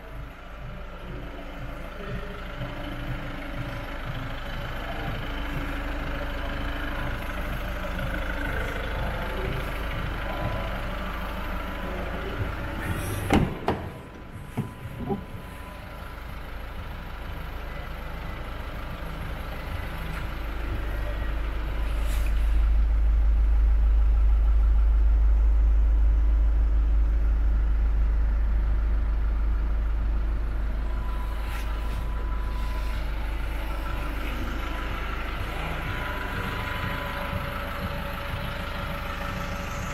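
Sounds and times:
van engine idling: 0.0s - 39.9s
sharp knocks: 13.3s - 14.0s.

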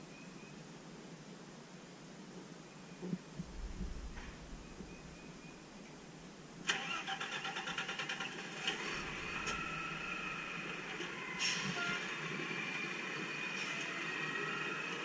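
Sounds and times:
mechanical whine with flutter: 3.4s - 15.0s
truck engine rumble: 3.4s - 15.0s.

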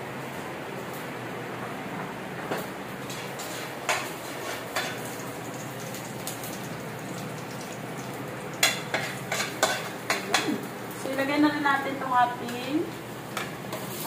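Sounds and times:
oil sizzling in a frying pan: 3.4s - 11.3s, 13.0s - 14.0s
spatula clinking on metal: 8.6s - 10.5s.

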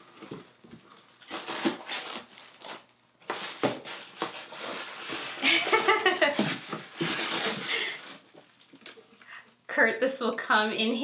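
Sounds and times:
cardboard and paper rustling: 0.0s - 8.8s.

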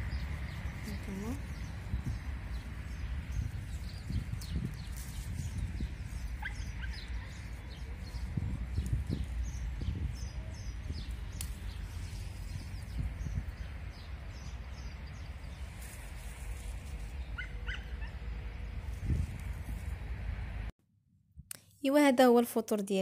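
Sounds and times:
small birds chirping: 0.0s - 19.5s
wind rumble on microphone: 0.0s - 20.7s.

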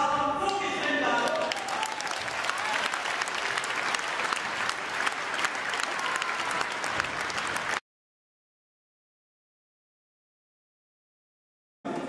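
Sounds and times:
crowd applauding: 0.8s - 7.8s.

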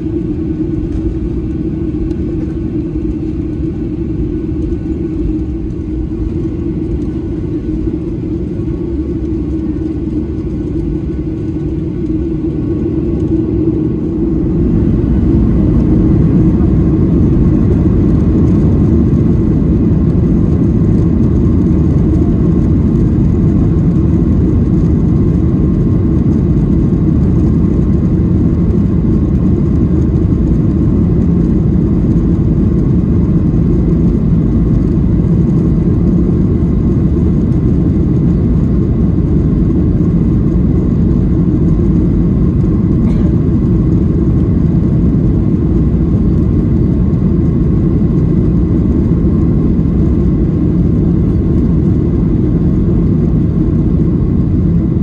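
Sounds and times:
faint thin whine: 0.0s - 19.3s
jet engine cabin rumble: 0.0s - 55.0s.

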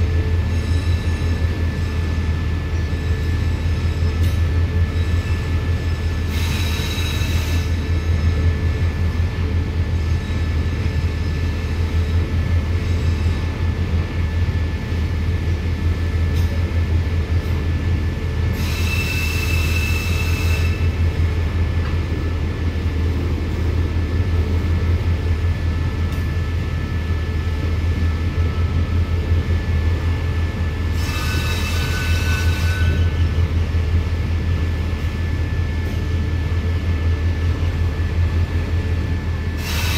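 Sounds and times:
train wheels rumbling on rails: 0.0s - 39.9s
high-pitched wheel squeals: 18.6s - 20.9s, 30.9s - 33.3s.

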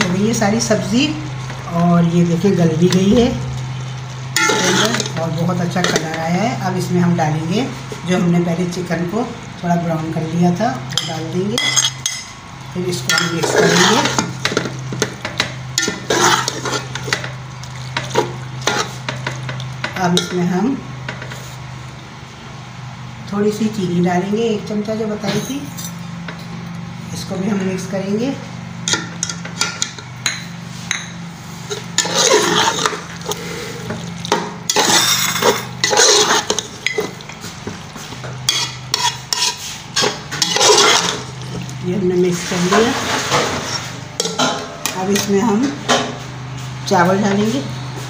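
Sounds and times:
metal skimmer scraping metal pot: 4.3s - 6.1s, 13.1s - 20.3s, 30.9s - 37.6s, 38.2s - 44.6s.

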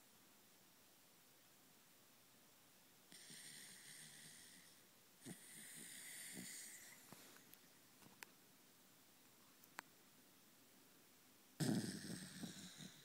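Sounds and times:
dog snoring: 3.1s - 7.1s, 11.6s - 13.0s
dog snorting: 3.1s - 7.2s, 11.6s - 13.0s.

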